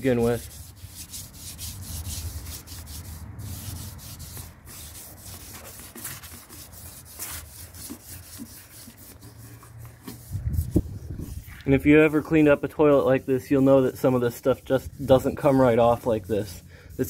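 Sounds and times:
scouring pad scrubbing toilet bowl: 3.6s - 17.0s.

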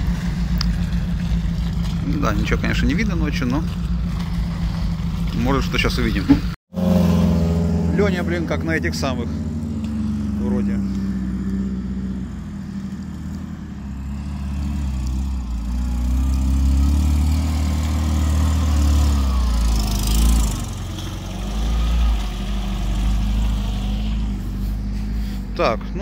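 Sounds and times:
off-road vehicle engine under load: 0.0s - 26.0s.

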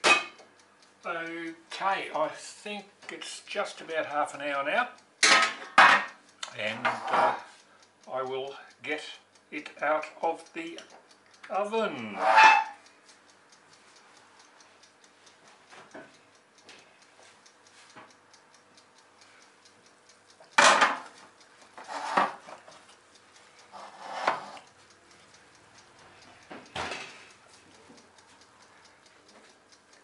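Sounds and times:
cast-iron pot clanking on metal tray: 0.0s - 0.4s, 5.2s - 6.1s, 6.9s - 7.4s, 20.6s - 21.0s
faint regular ticking: 0.0s - 30.0s.

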